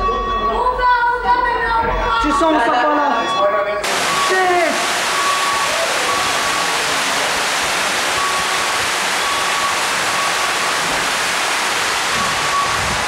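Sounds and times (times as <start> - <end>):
faint high beep: 3.0 - 7.3
floodwater rushing down steps: 3.8 - 13.0.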